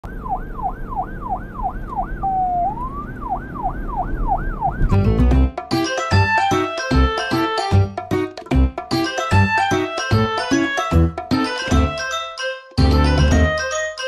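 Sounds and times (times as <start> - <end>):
police siren wailing: 0.0 - 5.0
cheerful children's music: 5.0 - 14.0.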